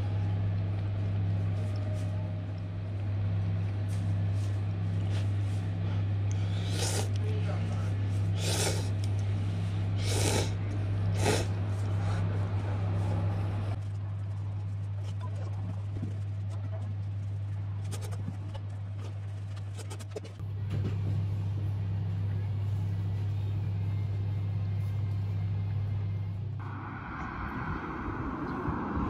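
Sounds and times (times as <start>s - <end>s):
steady low hum: 0.0s - 29.0s
noodles being slurped: 6.4s - 7.2s, 8.3s - 9.1s, 10.0s - 11.6s.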